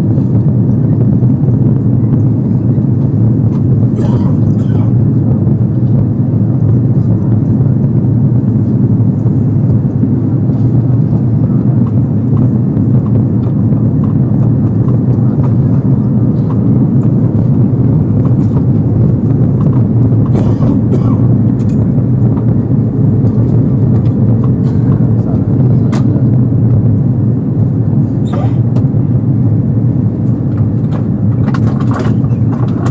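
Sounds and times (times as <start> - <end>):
airplane cabin engine drone: 0.0 - 32.9.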